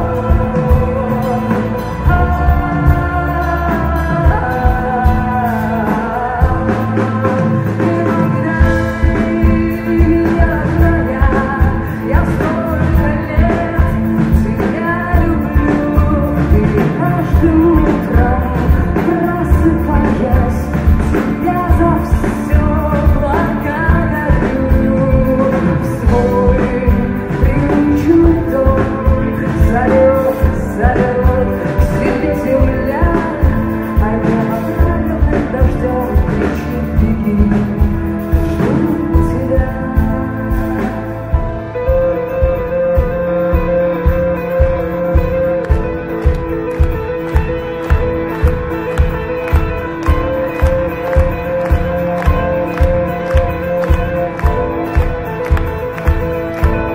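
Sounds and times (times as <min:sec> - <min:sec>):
electric guitar: 0:00.0 - 0:56.9
woman singing: 0:00.0 - 0:56.9
drum beat: 0:41.9 - 0:56.9.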